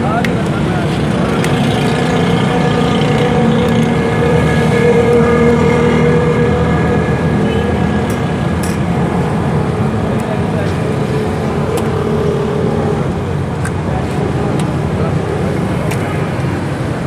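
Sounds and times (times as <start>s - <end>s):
busy street noise: 0.0s - 17.0s
steady motor drone: 0.0s - 17.0s.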